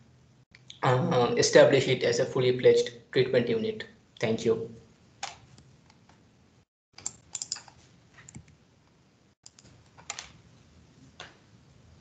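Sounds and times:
keyboard and mouse clicks: 0:05.2 - 0:06.2, 0:07.0 - 0:08.6, 0:09.4 - 0:10.4.

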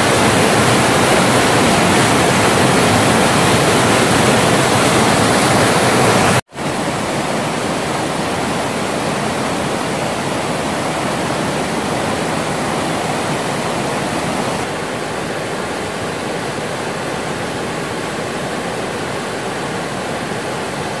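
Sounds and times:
stream rushing over boulders: 0:00.0 - 0:21.0.

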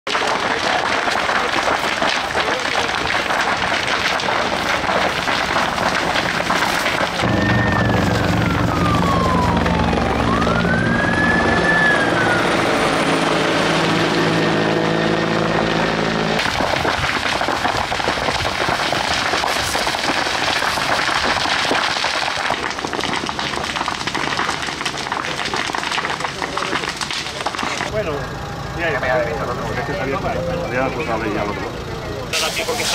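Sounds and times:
fire hose spraying: 0:00.1 - 0:12.5, 0:15.1 - 0:27.9, 0:32.3 - 0:32.9
fire crackling and popping: 0:00.1 - 0:28.2, 0:31.7 - 0:32.9
siren wail: 0:03.2 - 0:16.8, 0:27.9 - 0:32.3.

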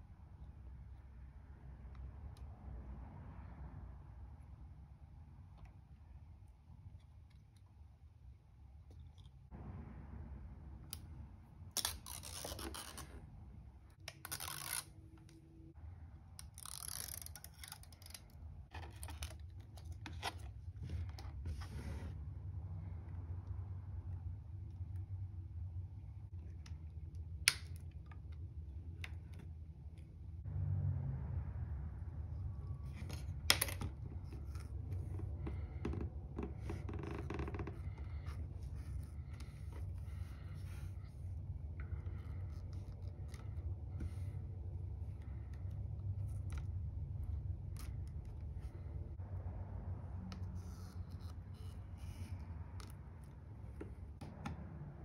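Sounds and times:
low steady hum: 0:00.0 - 0:55.0
protective film peeling: 0:11.7 - 0:13.2, 0:14.0 - 0:15.1, 0:16.4 - 0:18.4.

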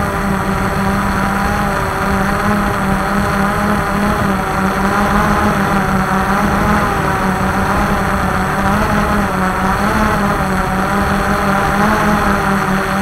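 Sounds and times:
quadcopter propellers whirring: 0:00.0 - 0:13.0.

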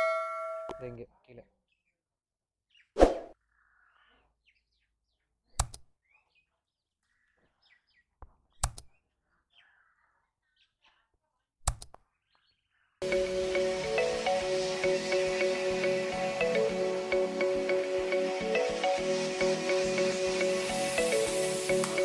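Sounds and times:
small birds chirping: 0:01.2 - 0:22.0
mouse clicks: 0:05.6 - 0:05.8, 0:08.6 - 0:08.9, 0:11.6 - 0:12.0.

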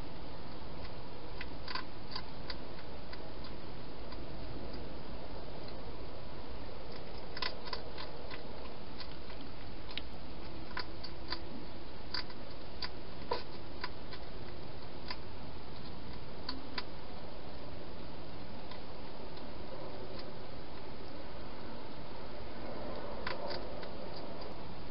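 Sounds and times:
hedgehog chewing clicks: 0:00.8 - 0:04.9, 0:06.9 - 0:17.6, 0:21.8 - 0:24.6.

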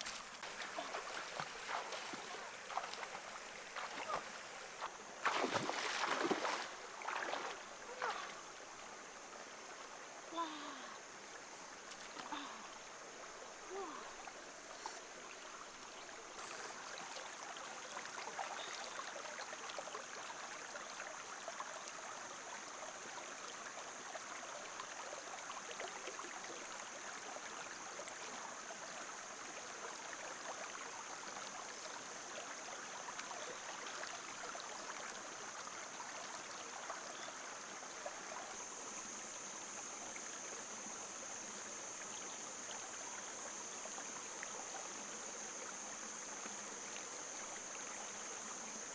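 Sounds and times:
stream flowing over rocks: 0:00.0 - 0:48.9
hands splashing in water: 0:05.2 - 0:07.6.

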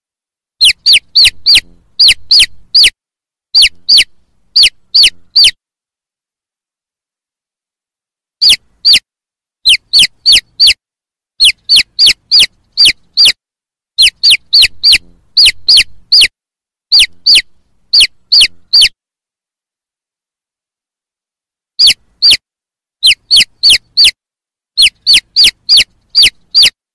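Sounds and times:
chicks peeping: 0:00.6 - 0:03.0, 0:03.6 - 0:05.6, 0:09.7 - 0:10.8, 0:11.4 - 0:13.4, 0:14.0 - 0:16.3, 0:16.9 - 0:18.9, 0:23.0 - 0:24.2, 0:24.8 - 0:26.8.

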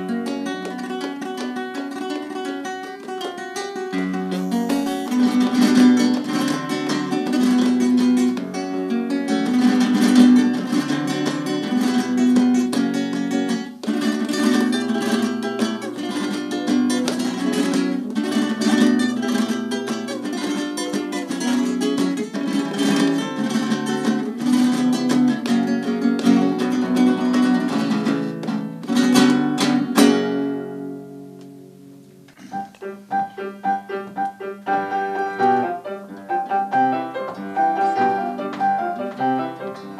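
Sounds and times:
flamenco classical guitar: 0:00.0 - 0:39.9
soft piano playing: 0:32.5 - 0:39.9.

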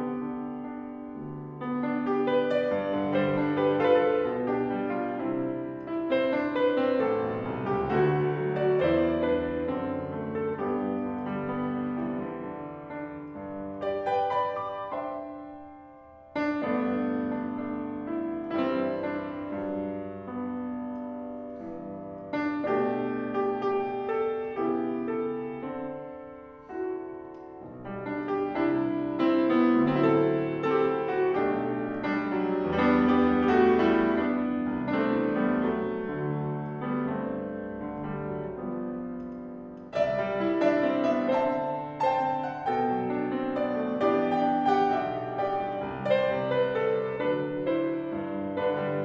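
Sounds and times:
solo piano folk dance: 0:00.0 - 0:49.0.

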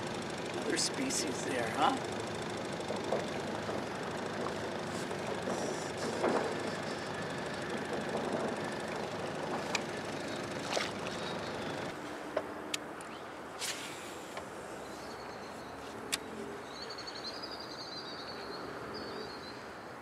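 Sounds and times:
outboard motor idling: 0:00.0 - 0:12.0.

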